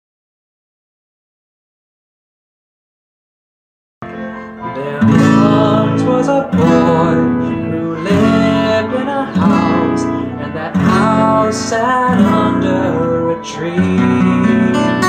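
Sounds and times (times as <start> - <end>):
acoustic guitar strummed: 4.0 - 15.0
young man singing: 4.2 - 15.0.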